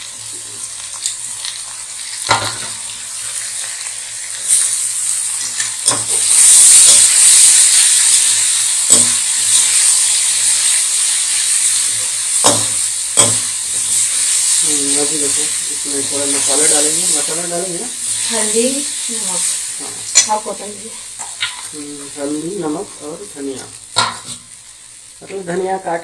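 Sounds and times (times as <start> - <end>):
food sizzling in pan: 0.0 - 26.0
spatula knocking against pan: 12.4 - 13.5.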